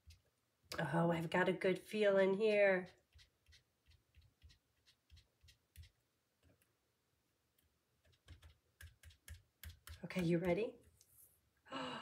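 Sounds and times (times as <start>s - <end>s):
sponge dabbing on paper: 2.8s - 6.0s.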